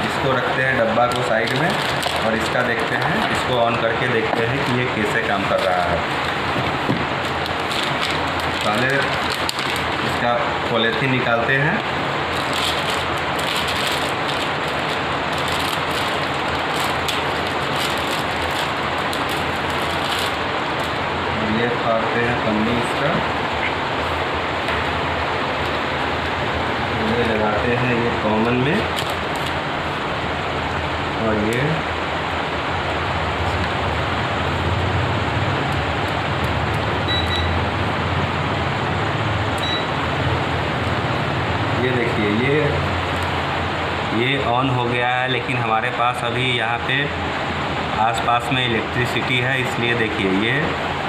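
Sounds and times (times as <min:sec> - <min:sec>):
fan-like rushing hum: 0:00.0 - 0:51.0
plastic bag crinkling: 0:00.7 - 0:06.5, 0:07.2 - 0:10.2, 0:12.2 - 0:21.0, 0:28.8 - 0:29.6
short electronic beep: 0:37.1 - 0:37.6, 0:39.6 - 0:39.9.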